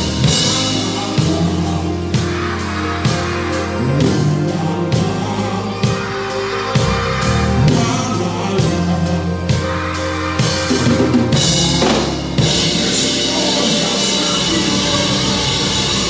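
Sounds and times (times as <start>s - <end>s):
drum kit playing: 0.0s - 16.0s
recorded music with bass line: 0.0s - 16.0s
cymbals crashing: 10.4s - 16.0s.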